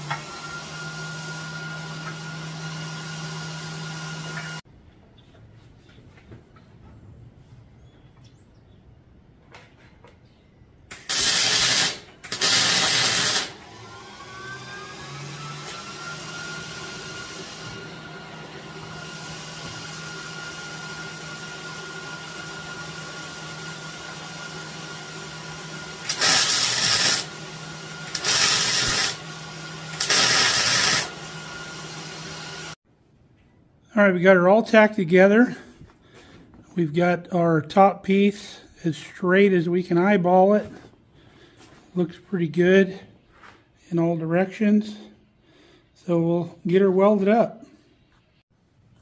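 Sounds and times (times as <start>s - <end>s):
welder motor hum: 0.0s - 4.6s, 10.9s - 32.8s
welding arc crackling: 10.9s - 13.6s, 26.0s - 27.4s, 28.0s - 29.3s, 29.9s - 31.2s.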